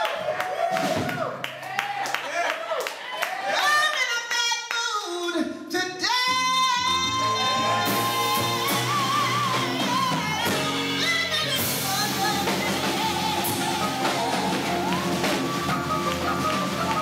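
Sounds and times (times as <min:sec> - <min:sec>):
woman singing with vibrato: 0:03.6 - 0:17.0
jazz trio with drums: 0:06.4 - 0:17.0.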